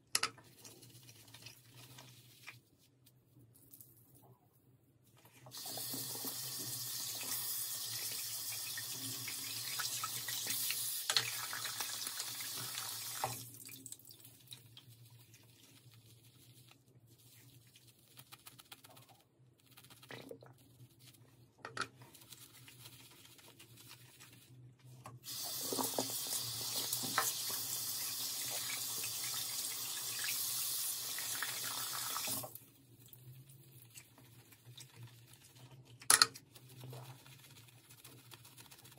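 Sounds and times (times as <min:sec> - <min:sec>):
brush squishing on wet soap: 0:00.4 - 0:03.7, 0:14.0 - 0:27.7, 0:32.5 - 0:38.9
tap water running into sink: 0:05.5 - 0:13.6, 0:25.3 - 0:32.5.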